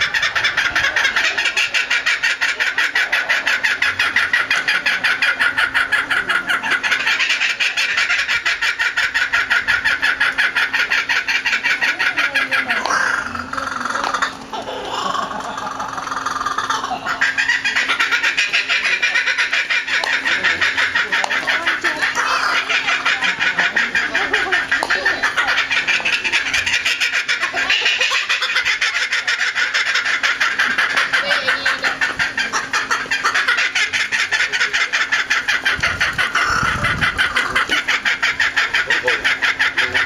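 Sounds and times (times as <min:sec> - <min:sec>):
kookaburra laughing call: 0:00.0 - 0:40.0.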